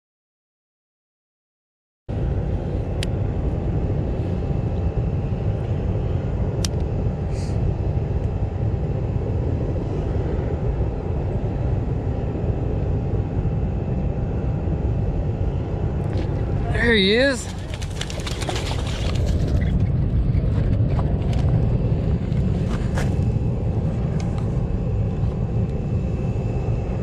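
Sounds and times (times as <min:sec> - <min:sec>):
faint hum: 0:02.1 - 0:27.0
low rumble: 0:02.1 - 0:27.0.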